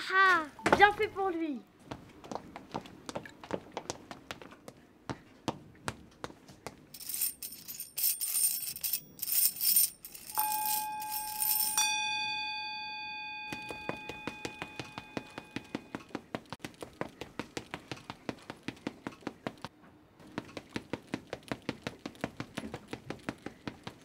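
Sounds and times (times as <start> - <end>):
bell-like ding: 10.3 - 16.1.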